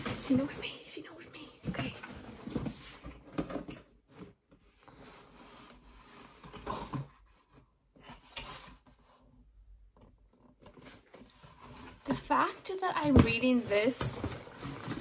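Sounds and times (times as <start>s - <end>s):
cardboard and paper scraping: 10.6s - 15.0s.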